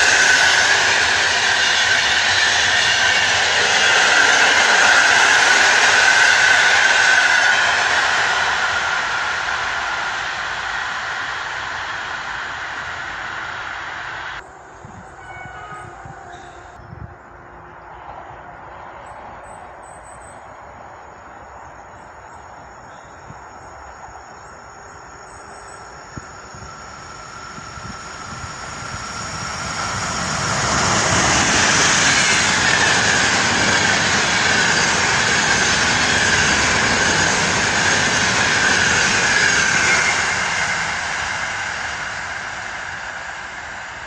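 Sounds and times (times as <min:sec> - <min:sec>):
train wheels rolling on rails: 0:00.0 - 0:44.0.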